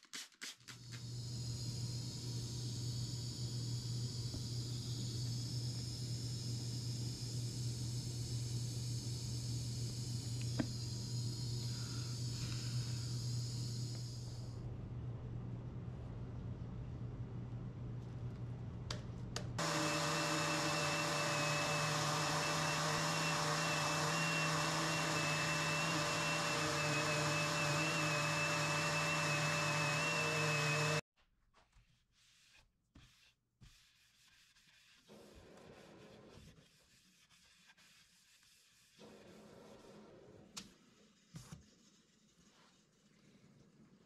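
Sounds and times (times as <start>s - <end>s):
orbit sander on wood: 19.6s - 31.0s
faint rubbing sounds: 31.6s - 44.0s.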